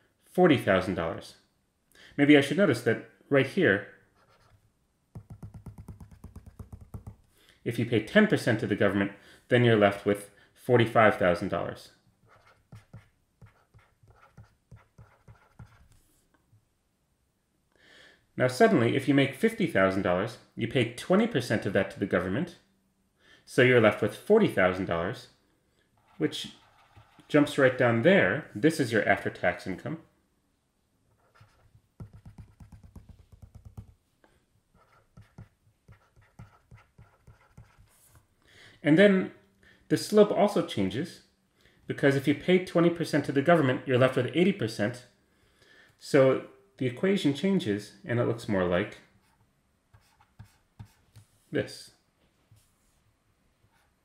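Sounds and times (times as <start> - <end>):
stylus tapping on tablet screen: 5.1 - 7.2, 31.6 - 34.0.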